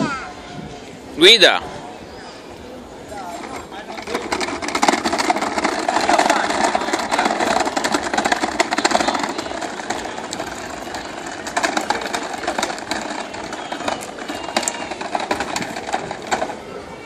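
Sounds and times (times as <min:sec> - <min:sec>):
plastic wheels rattling on pebbles: 0:03.0 - 0:17.0.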